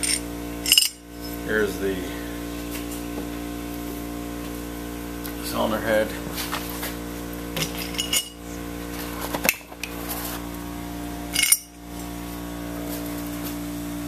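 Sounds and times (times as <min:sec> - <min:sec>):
metal parts clinking: 0:00.0 - 0:01.4, 0:07.6 - 0:08.4, 0:11.4 - 0:11.8
steady hum: 0:00.0 - 0:14.0.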